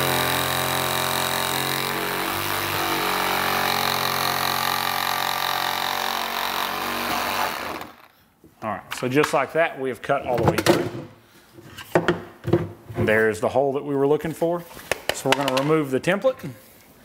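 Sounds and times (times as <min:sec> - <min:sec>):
reciprocating saw cutting: 0:00.0 - 0:08.1.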